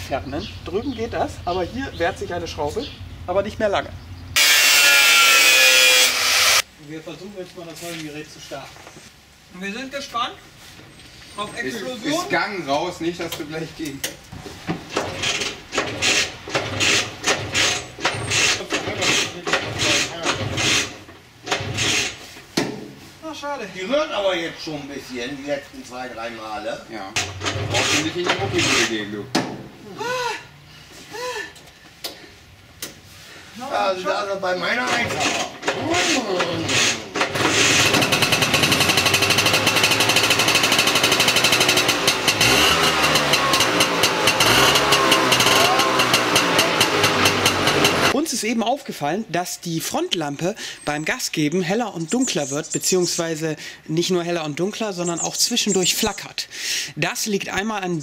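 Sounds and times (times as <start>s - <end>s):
small engine running and revving: 4.4s - 6.6s, 35.8s - 48.2s
engine cranking without starting: 15.0s - 22.2s, 27.2s - 29.2s, 34.8s - 48.2s.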